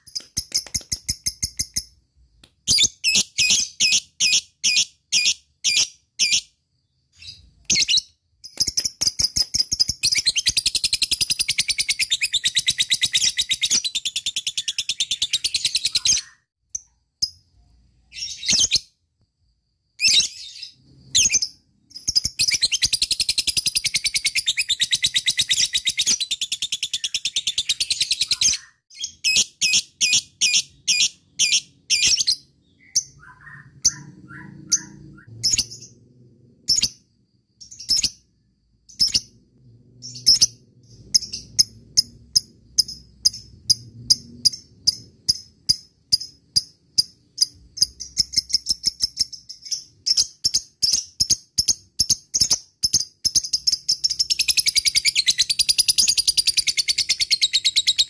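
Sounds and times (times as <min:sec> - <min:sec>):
lovebird chirps: 0:00.0 - 0:58.0
lovebird chattering trill: 0:21.2 - 0:35.9.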